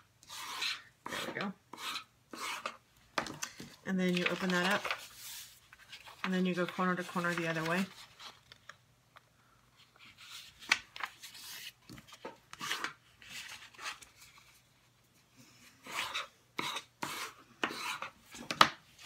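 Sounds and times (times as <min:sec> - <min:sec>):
bone folder scraping paper: 0:00.3 - 0:02.8
paper sliding and rustling: 0:04.1 - 0:08.6.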